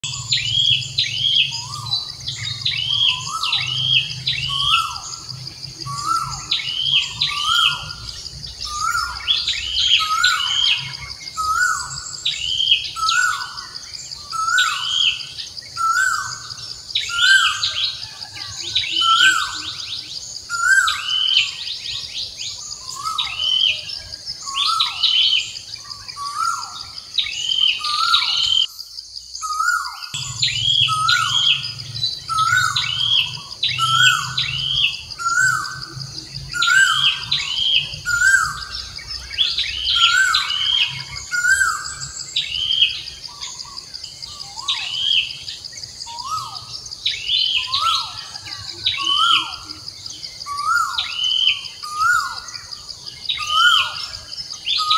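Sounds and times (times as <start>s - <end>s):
high bird chirps: 0.0s - 28.7s, 29.4s - 54.9s
high insect drone: 0.0s - 54.9s
bird falling call: 29.5s - 35.8s.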